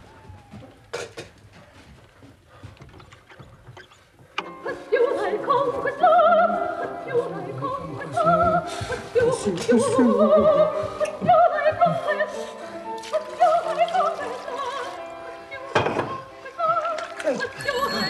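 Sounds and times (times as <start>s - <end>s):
opera singer with vibrato: 4.5s - 18.0s.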